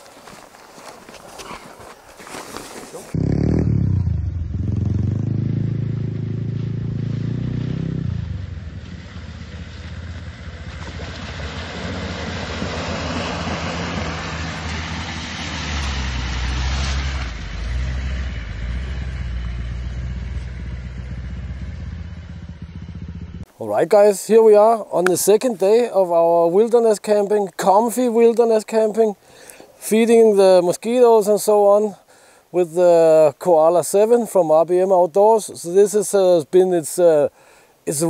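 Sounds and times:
car engine rumble: 3.1s - 23.6s
tyres churning through mud: 9.0s - 20.9s.

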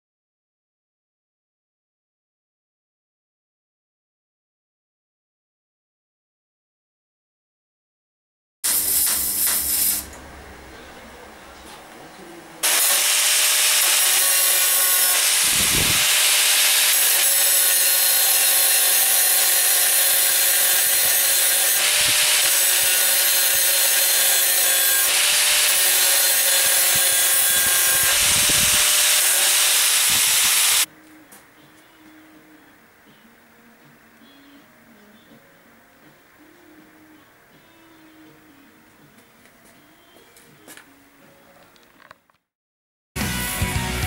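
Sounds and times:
angle grinder grinding metal: 8.7s - 10.2s, 12.6s - 30.9s.

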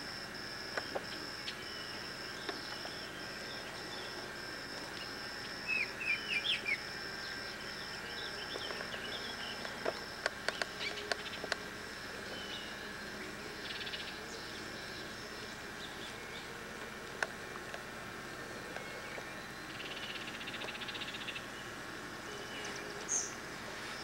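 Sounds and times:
pulsing insect trill: 0.0s - 24.0s
birds chirping: 0.8s - 11.6s
sharp clicks: 9.6s - 11.6s.

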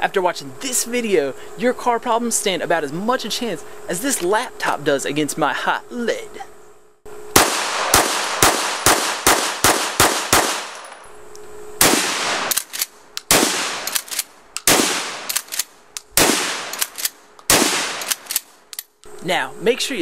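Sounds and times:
pistol shots: 7.3s - 10.9s, 11.8s - 18.4s
shotgun shots with echo: 7.4s - 10.8s, 11.8s - 12.6s, 13.3s - 15.4s, 16.2s - 18.3s.

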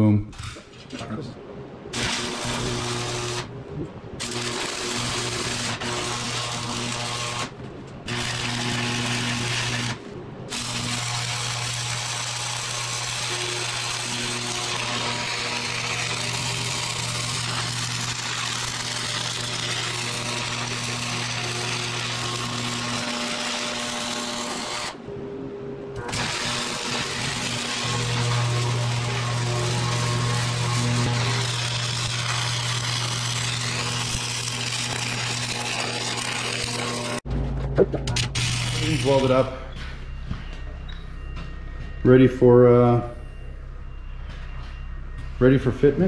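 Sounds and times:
welding arc crackling: 1.9s - 3.6s, 4.2s - 25.0s, 26.0s - 37.2s, 38.1s - 39.6s.

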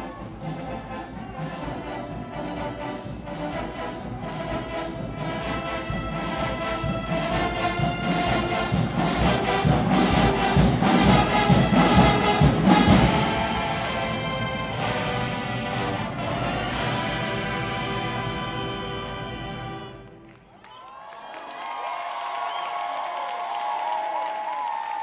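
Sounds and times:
brass marching band playing: 0.0s - 20.4s.

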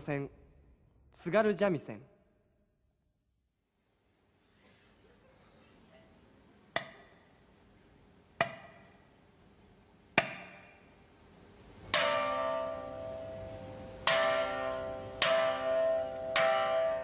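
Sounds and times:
shamisen notes struck hard: 11.9s - 17.0s.

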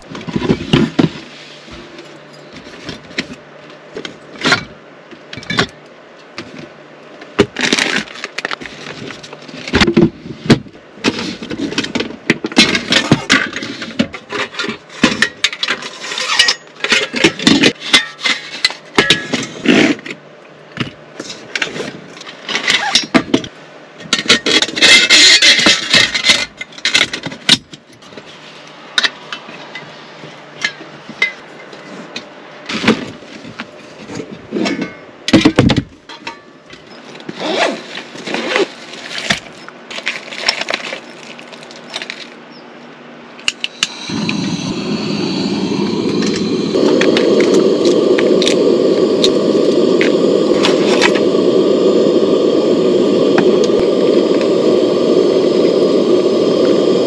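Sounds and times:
gas burner roaring: 6.6s - 28.3s, 43.3s - 57.0s.

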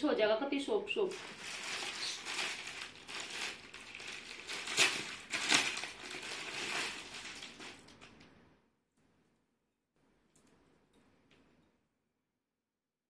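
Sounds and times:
fabric crackles: 1.0s - 8.3s
fabric rustling and crinkling: 1.0s - 8.3s.

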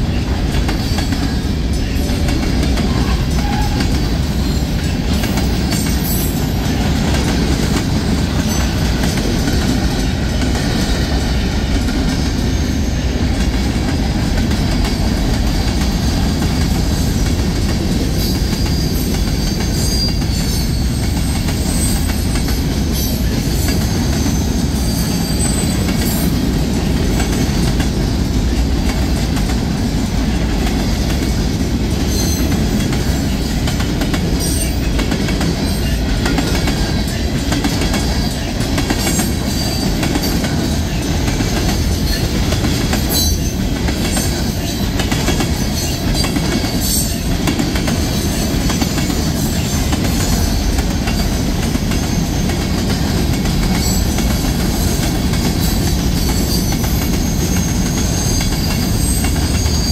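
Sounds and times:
rumble of steel wheels on rail: 0.0s - 59.9s
high wheel squeals: 56.3s - 59.9s.

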